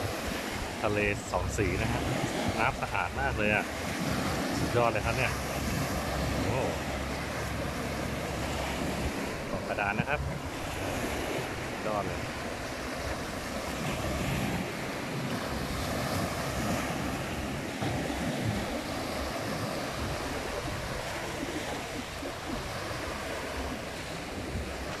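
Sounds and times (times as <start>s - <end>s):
waves washing on sandy beach: 0.0s - 25.0s
wind buffeting microphone: 0.0s - 25.0s.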